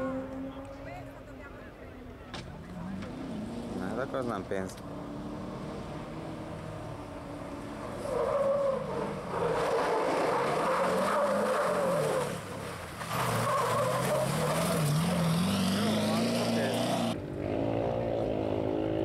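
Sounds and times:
car engine revving hard: 14.2 - 17.2.

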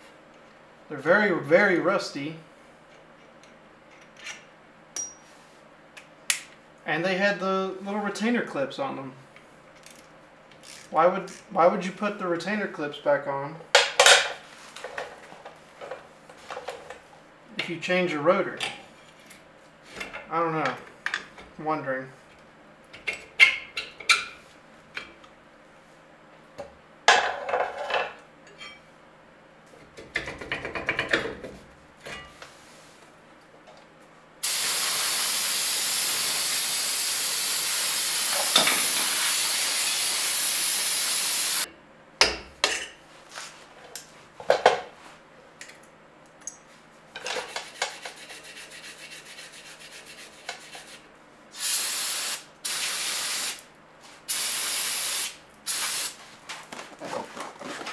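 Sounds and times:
aerosol spray can hissing: 34.4 - 41.7, 51.6 - 53.6, 54.3 - 56.2.

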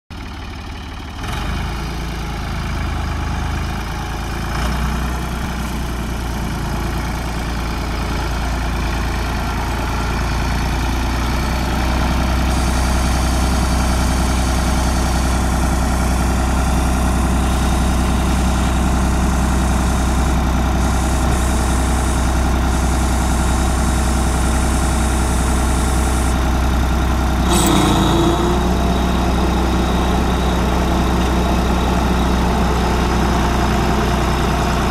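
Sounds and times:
tractor diesel engine running: 0.1 - 34.9
brief loud noise: 27.4 - 28.8.

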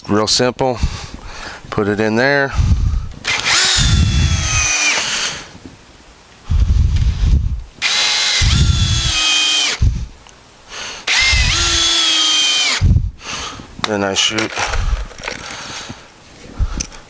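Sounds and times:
cordless drill driving screws into wood: 3.2 - 5.5, 7.8 - 9.9, 11.1 - 12.8, 14.4 - 16.0.

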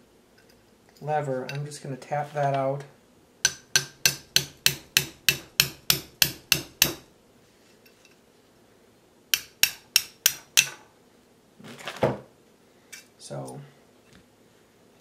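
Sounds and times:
hammer tapping metal punch: 3.4 - 7.0, 9.3 - 10.8.

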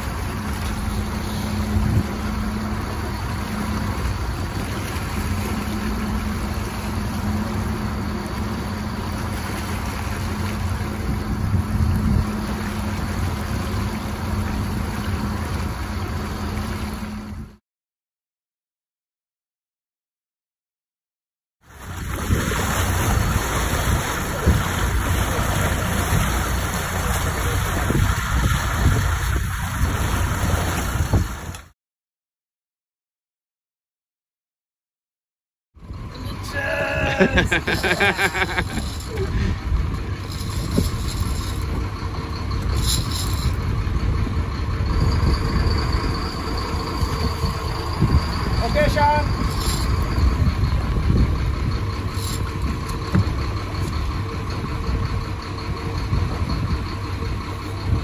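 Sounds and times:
boat engine humming: 0.0 - 17.6, 21.6 - 31.7, 35.8 - 58.0
water rushing: 0.0 - 17.6, 21.6 - 31.7, 36.1 - 43.7, 44.7 - 51.2
wind buffeting microphone: 21.9 - 31.5, 38.6 - 58.0.

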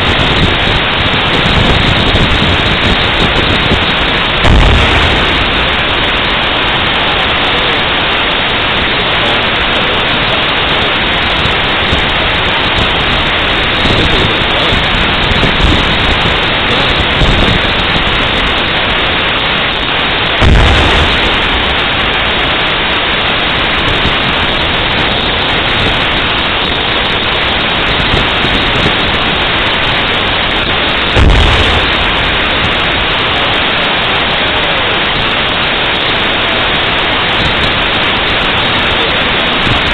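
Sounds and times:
steady loud hiss: 0.0 - 39.9
tank gun booms: 2.4 - 6.6, 20.4 - 22.8, 31.2 - 32.7.

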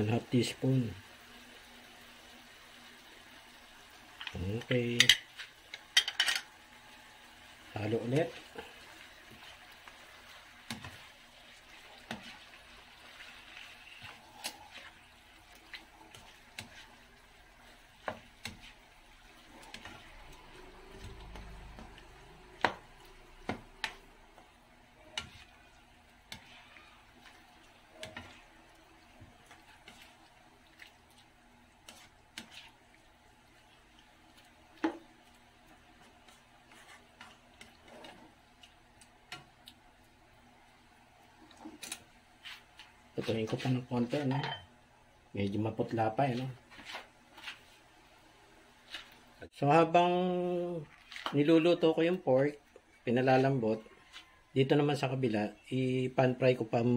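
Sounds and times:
meat frying hiss: 0.0 - 44.4
spatula scraping a wok: 29.3 - 30.3, 31.8 - 32.8, 36.0 - 38.4.

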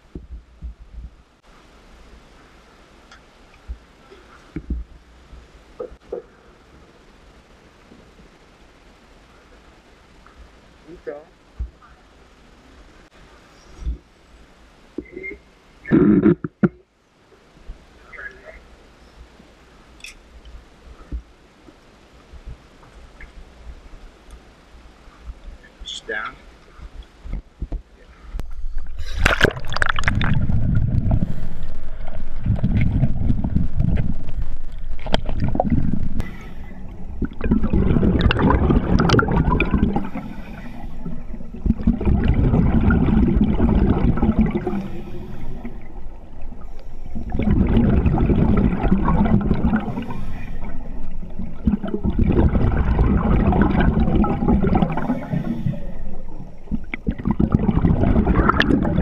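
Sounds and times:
underwater bubbles gurgling: 28.4 - 59.0.

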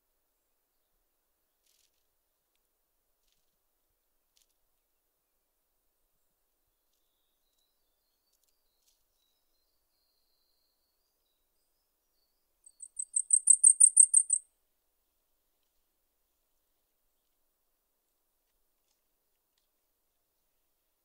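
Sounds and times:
warbler singing high notes: 12.7 - 14.4.

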